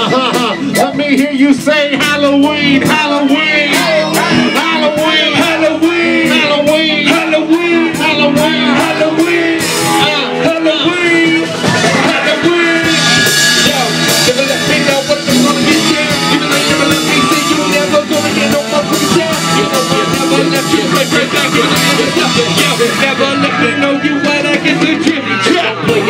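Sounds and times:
loud music with melody: 0.0s - 26.0s.

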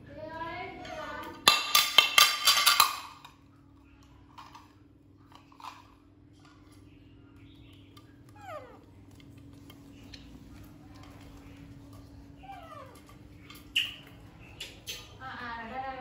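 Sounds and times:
plate clattering on tile floor: 1.4s - 3.4s.

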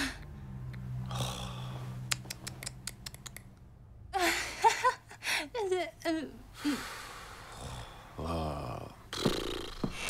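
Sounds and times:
sharp clicks or snips: 2.1s - 3.6s.

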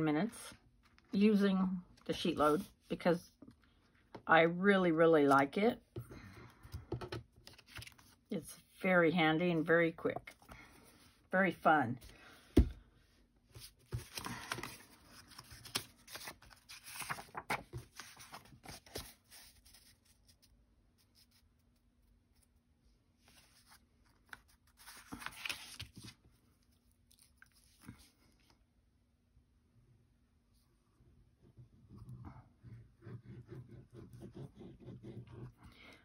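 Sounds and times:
paper rustling and sliding: 7.4s - 8.2s, 13.6s - 20.4s, 23.2s - 26.2s.

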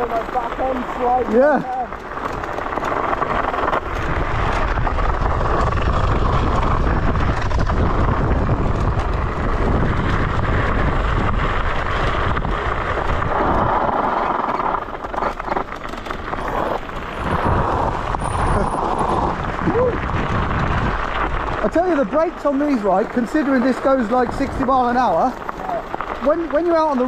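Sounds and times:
tyre rumble: 0.0s - 27.0s
wind on microphone: 3.4s - 15.6s, 16.4s - 21.7s.

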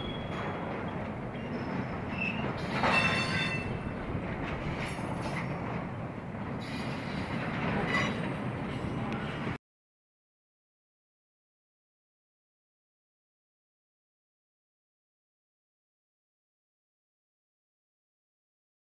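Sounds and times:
high-pitched wheel squeals: 0.0s - 0.6s, 1.4s - 3.8s
freight cars rumbling on rails: 0.0s - 9.6s.

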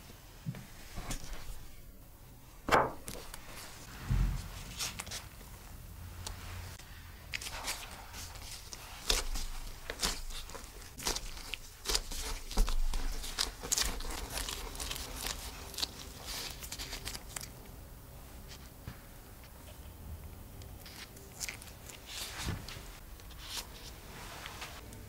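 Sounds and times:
dough crackling under hand: 2.6s - 17.8s.

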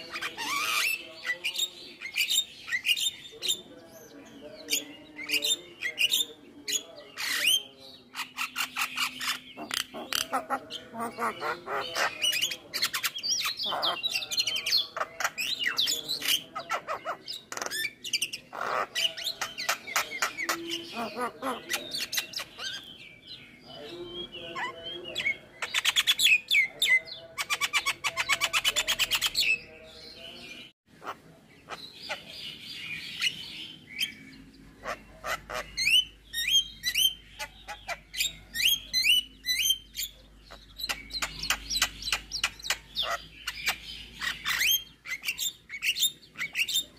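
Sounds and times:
bird singing varied song: 0.0s - 46.9s.

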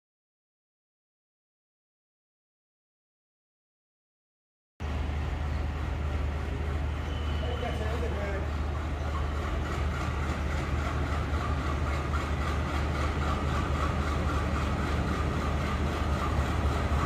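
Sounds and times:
diesel locomotive idling: 4.8s - 17.0s.

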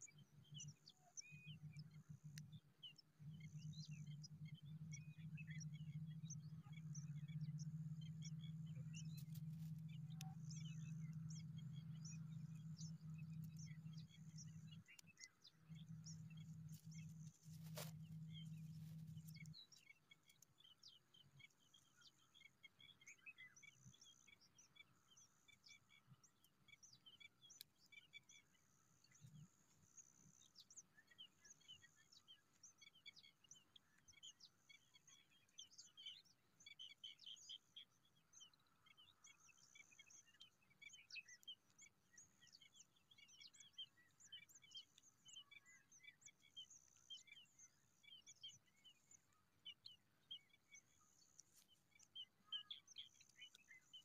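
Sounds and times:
low steady hum: 0.0s - 36.3s
bird chirps: 0.0s - 54.0s.

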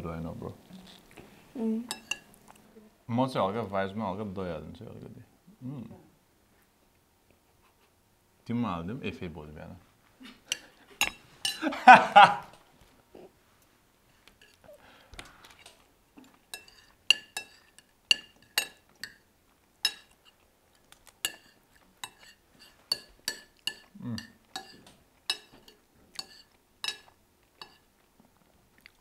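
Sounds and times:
cutlery clinking on plates: 1.9s - 2.3s, 10.5s - 11.7s, 16.2s - 20.4s, 21.2s - 27.9s.

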